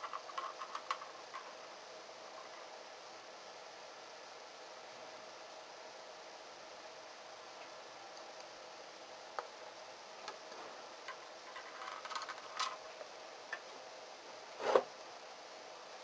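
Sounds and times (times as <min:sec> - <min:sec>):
small parts clicking and tapping: 0:00.0 - 0:01.6, 0:11.0 - 0:12.8
faint steady hiss: 0:00.0 - 0:16.0.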